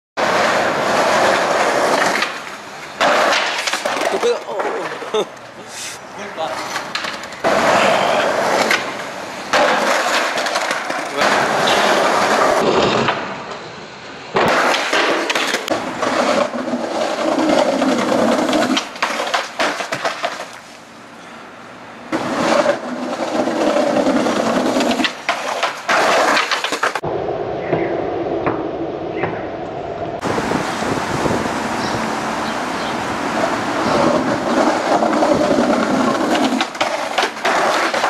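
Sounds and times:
skateboard clacking on ground: 0.2s - 5.6s, 6.2s - 13.6s, 14.4s - 20.6s, 22.1s - 27.0s, 33.7s - 38.0s
skateboard wheels rolling on concrete: 0.2s - 38.0s.

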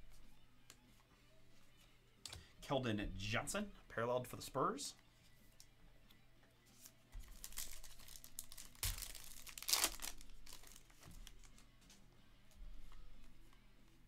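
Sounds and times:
foil wrapper tearing and crinkling: 7.3s - 11.5s.

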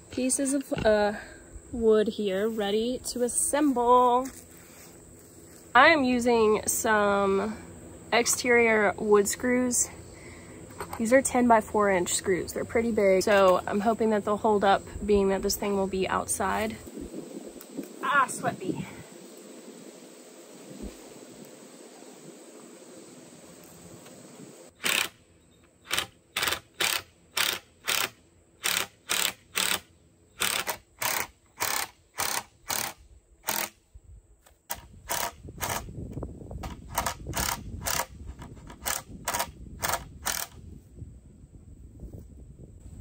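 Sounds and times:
cordless drill driving screws: 30.4s - 33.7s.

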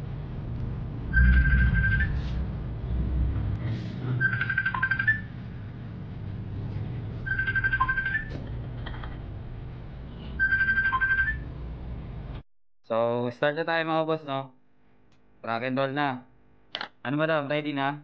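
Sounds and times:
steady low hum: 0.0s - 10.5s
phone ringtone trilling: 1.2s - 2.2s, 4.2s - 5.3s, 7.3s - 8.3s, 10.4s - 11.4s.

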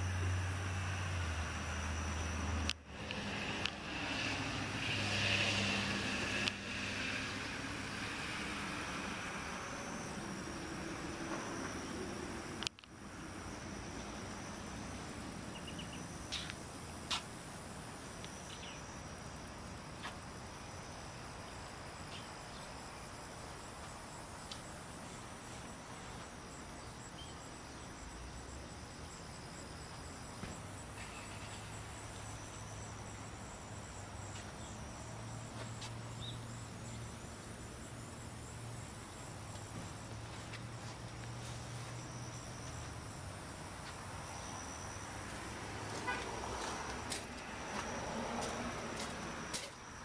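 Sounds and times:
insects chirring: 0.0s - 50.0s.

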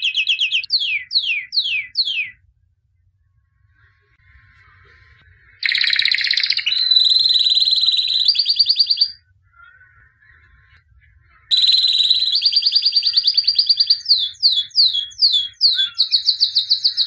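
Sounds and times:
canary singing trills: 0.0s - 2.4s, 5.6s - 10.6s, 11.3s - 17.0s.

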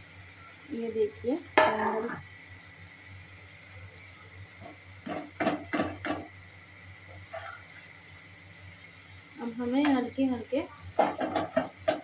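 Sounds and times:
steady sizzle: 0.0s - 12.0s
spatula clinking and scraping pan: 5.0s - 6.3s, 7.2s - 7.8s, 11.0s - 12.0s.

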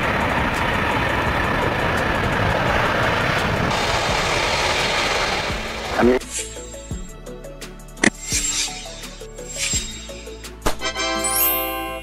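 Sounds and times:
jet engines roaring: 0.0s - 7.0s.

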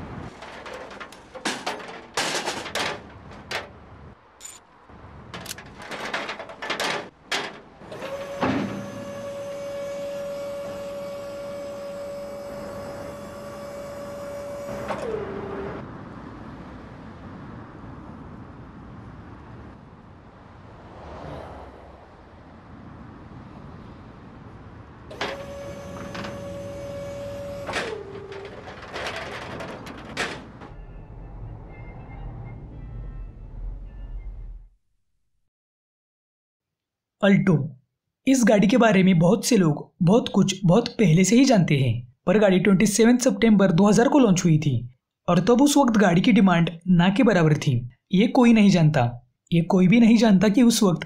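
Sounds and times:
metal clanks and knocks: 0.2s - 9.0s, 25.1s - 30.8s
hydraulic pump whining: 5.4s - 15.8s, 25.1s - 30.7s.

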